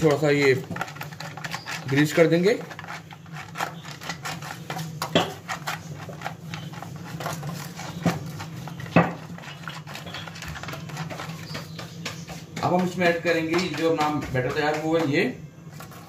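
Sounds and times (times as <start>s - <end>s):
pastry brush on foil tray: 0.0s - 16.0s.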